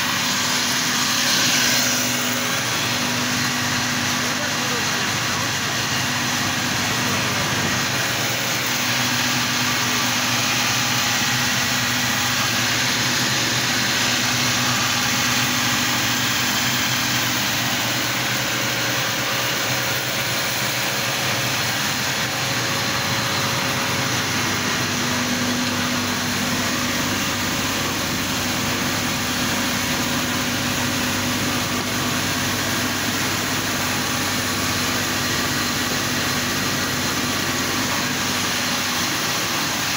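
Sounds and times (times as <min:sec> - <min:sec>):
flour mill machine drone: 0:00.0 - 0:39.9.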